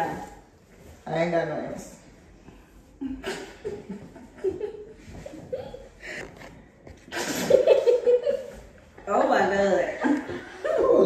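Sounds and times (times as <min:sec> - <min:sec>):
women chuckling and giggling: 0:03.0 - 0:06.5, 0:07.1 - 0:08.7.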